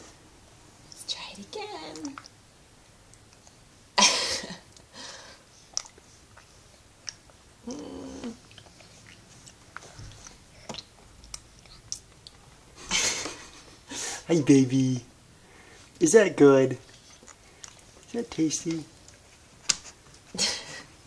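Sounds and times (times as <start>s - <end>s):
baby wet mouth noises: 1.9s - 2.4s, 5.7s - 12.4s.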